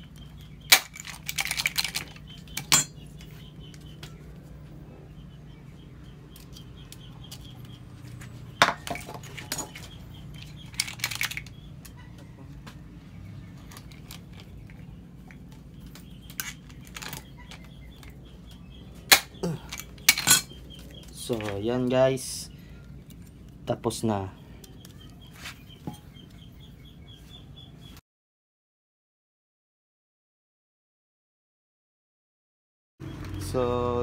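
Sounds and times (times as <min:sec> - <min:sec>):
metal clinks: 0:00.7 - 0:03.0, 0:19.6 - 0:20.6.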